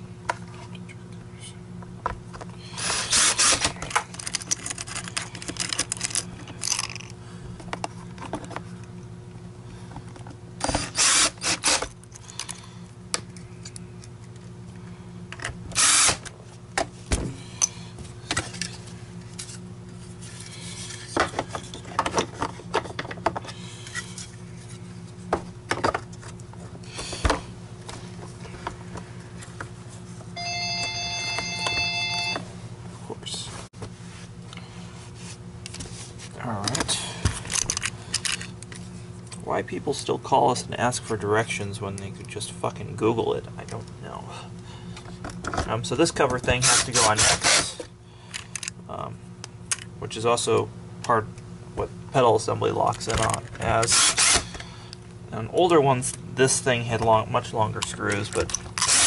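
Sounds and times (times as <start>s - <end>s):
plastic parts clattering: 3.7s - 7.1s
telephone ringing: 30.4s - 32.6s.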